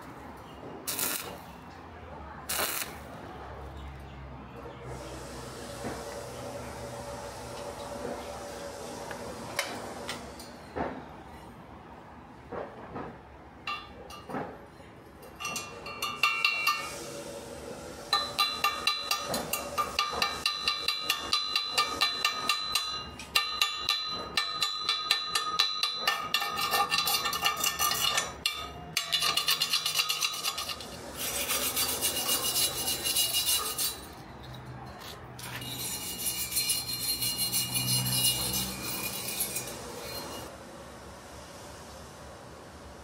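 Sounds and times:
wire brush scrubbing metal: 0.9 - 1.4, 2.5 - 3.0, 18.1 - 40.5
hammer tapping metal: 15.2 - 16.9, 18.1 - 30.8.

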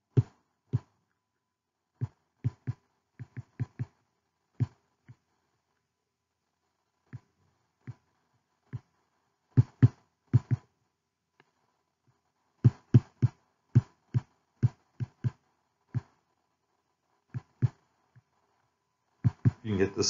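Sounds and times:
stylus tapping on tablet screen: 0.1 - 0.9, 2.0 - 4.0, 9.6 - 10.7, 12.6 - 16.2, 17.3 - 18.3, 19.2 - 19.6.

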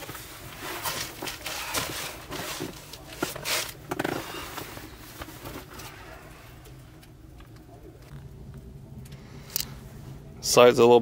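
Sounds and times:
camp cot creaking: 0.0 - 6.2.

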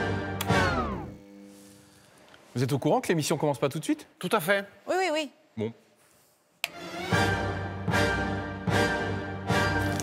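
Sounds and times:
dramatic soundtrack music: 6.7 - 10.0.

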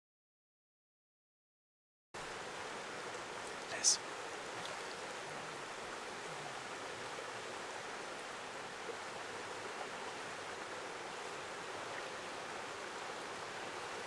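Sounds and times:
river water rushing: 2.2 - 14.0.

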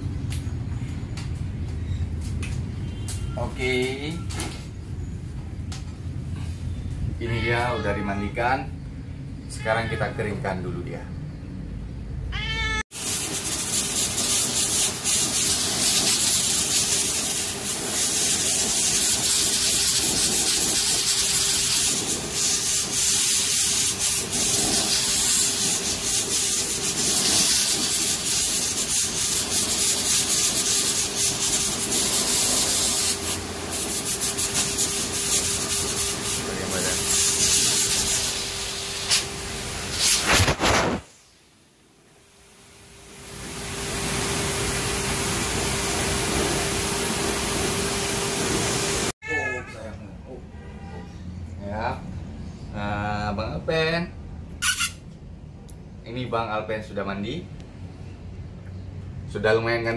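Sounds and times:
pet hair dryer blowing air: 13.0 - 40.4, 43.1 - 49.2.

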